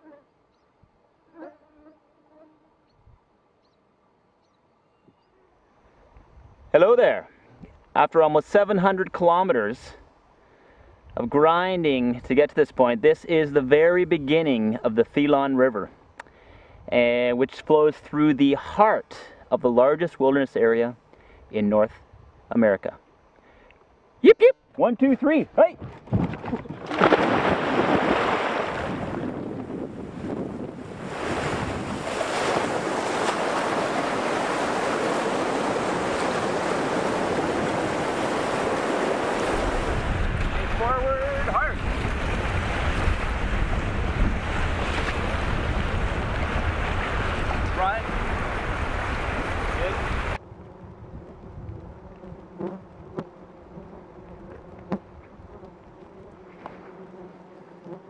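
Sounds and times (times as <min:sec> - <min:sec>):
flies and mosquitoes buzzing: 0:00.0 - 0:00.4, 0:01.1 - 0:03.0, 0:26.5 - 0:45.7, 0:49.8 - 0:58.0
wind buffeting microphone: 0:25.8 - 0:53.2.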